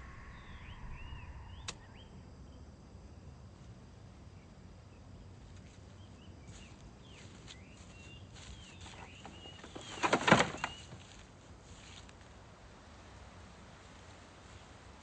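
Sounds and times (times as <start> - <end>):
birds chirping: 0.0 - 2.3, 5.8 - 11.2
scooter crashing onto ground: 9.3 - 11.1.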